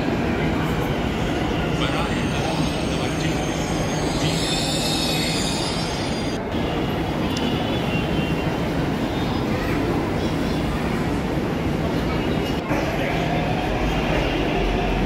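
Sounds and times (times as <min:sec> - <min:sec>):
electric train low hum: 0:00.0 - 0:07.2
platform and train noise: 0:00.0 - 0:15.0
high-pitched train squeal: 0:01.2 - 0:06.8.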